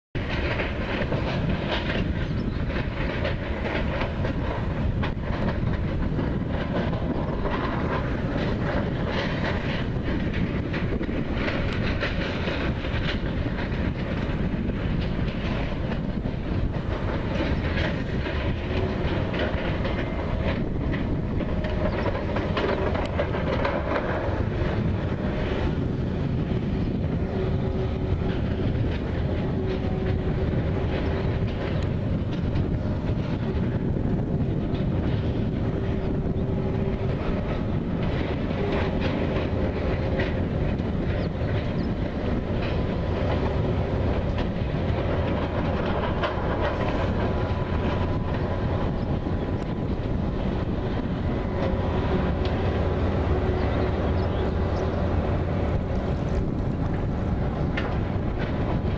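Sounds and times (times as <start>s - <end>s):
diesel engines rumbling: 0.2s - 58.9s.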